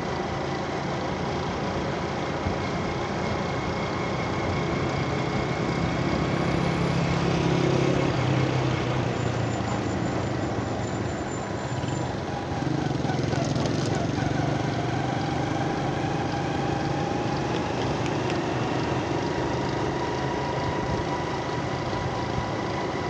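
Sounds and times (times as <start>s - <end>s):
wind and road noise: 0.0s - 23.0s
motorcycle engine running: 9.0s - 23.0s.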